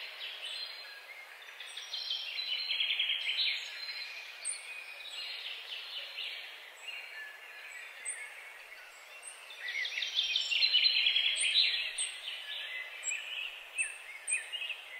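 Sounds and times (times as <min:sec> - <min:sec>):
faint background noise: 0:00.0 - 0:14.9
small birds chirping: 0:00.0 - 0:14.9.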